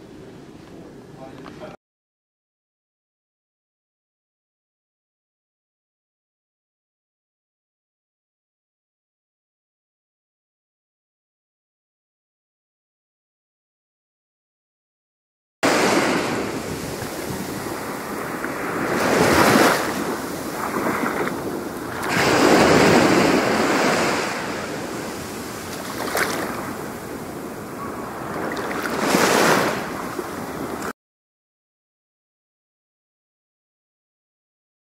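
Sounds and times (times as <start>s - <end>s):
waves washing up a beach: 15.6s - 30.9s.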